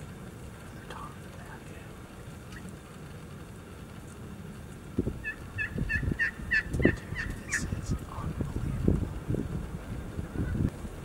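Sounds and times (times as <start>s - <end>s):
low rumbling thumps: 5.0s - 11.0s
turkeys yelping: 5.2s - 8.0s.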